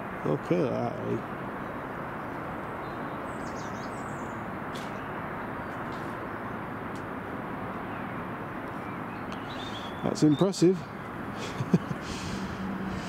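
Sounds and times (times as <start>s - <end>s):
rushing background noise: 0.0s - 13.0s
faint bird chirps: 7.9s - 10.7s.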